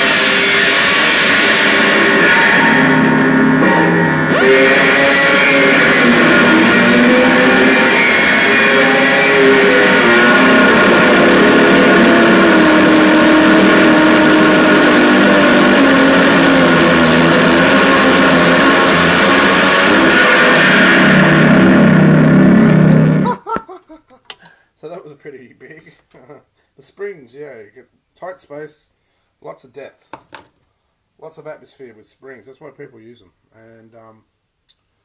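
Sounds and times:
distorted noise drone: 0.0 - 23.4.

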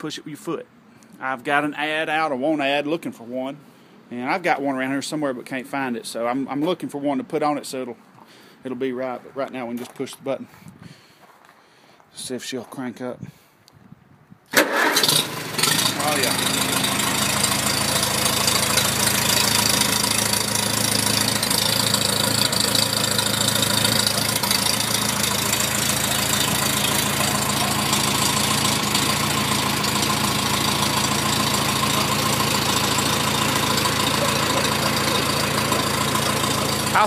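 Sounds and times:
tractor engine idling: 14.6 - 37.0.

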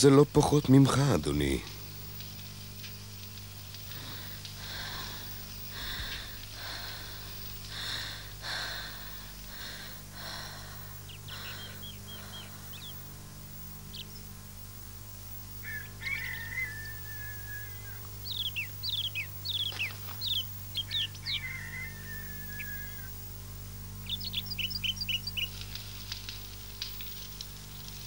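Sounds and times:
steady low hum: 0.0 - 28.0
girl breathing heavily: 3.9 - 12.8.

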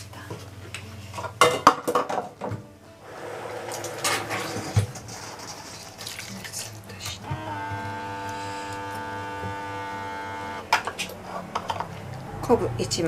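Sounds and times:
water pouring into a pot: 3.1 - 7.0.

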